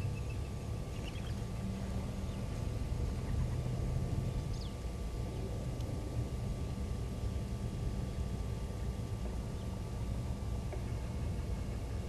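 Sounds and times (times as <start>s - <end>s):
faint high bird calls: 0.0s - 1.4s, 4.4s - 4.8s
steady low rumble: 0.0s - 12.0s.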